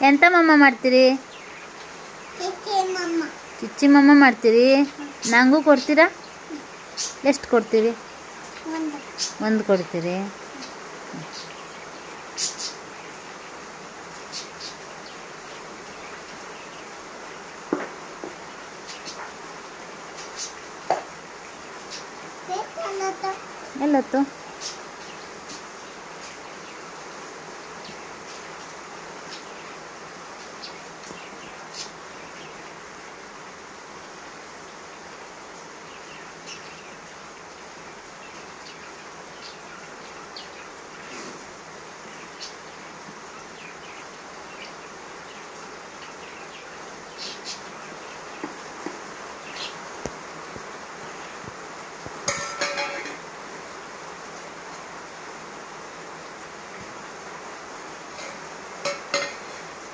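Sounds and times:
steady hiss: 0:00.0 - 0:59.9
steel plate clattering on floor: 0:52.3 - 0:53.2.

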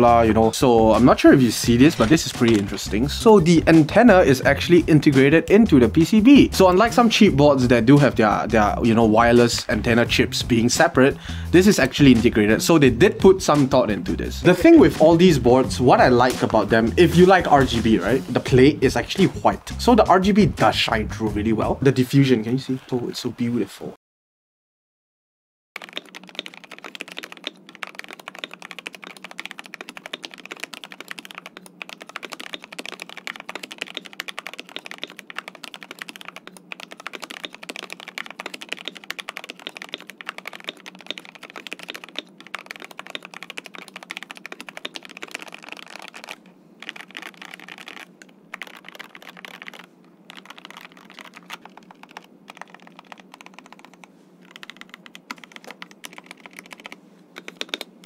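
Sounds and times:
mechanical keyboard typing: 0:00.5 - 0:07.2, 0:25.8 - 0:58.0.

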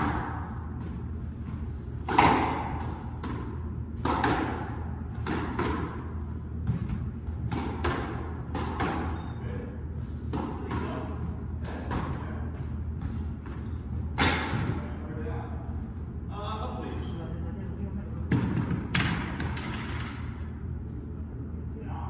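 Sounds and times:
squash ball hits: 0:00.0 - 0:09.3, 0:10.2 - 0:15.0, 0:18.3 - 0:20.4.

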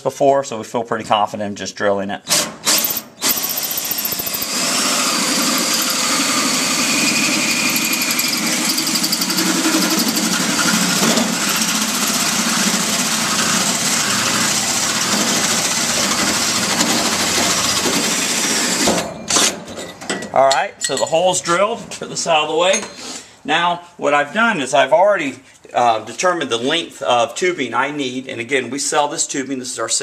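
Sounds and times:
power drill cutting through metal: 0:02.3 - 0:19.6.

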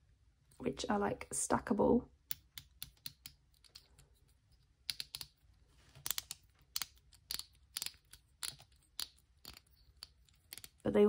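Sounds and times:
plastic fidget blocks clicking: 0:02.2 - 0:10.9.

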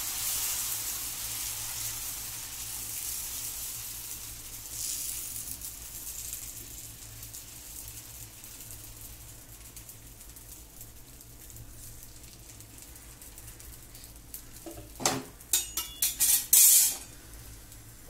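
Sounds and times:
batter sizzling on a hot pan: 0:00.0 - 0:18.0
metallic clinks of steel utensils: 0:15.6 - 0:17.0.

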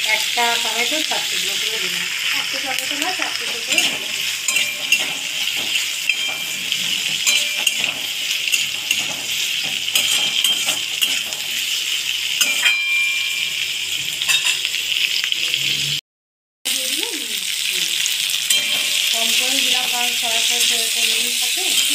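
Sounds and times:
vegetables sizzling in oil: 0:00.0 - 0:16.0, 0:16.7 - 0:21.9
metal spatula scraping pan: 0:03.4 - 0:14.7, 0:18.5 - 0:21.9.

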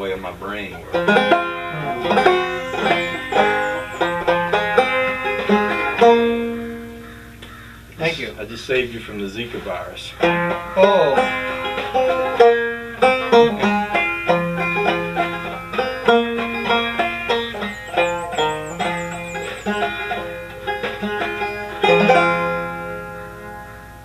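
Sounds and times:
banjo plucked notes: 0:00.0 - 0:08.4, 0:10.1 - 0:24.0.

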